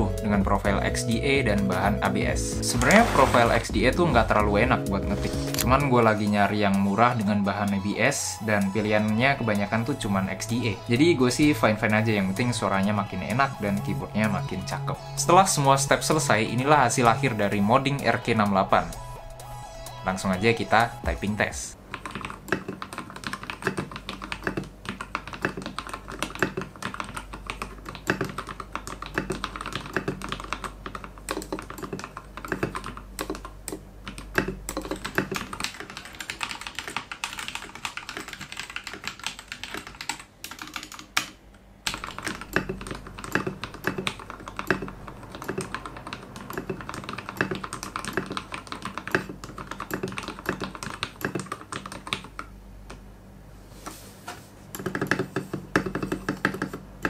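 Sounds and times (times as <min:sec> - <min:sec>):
mechanical keyboard typing: 0:00.2 - 0:07.8, 0:20.1 - 0:53.0, 0:54.7 - 0:57.0.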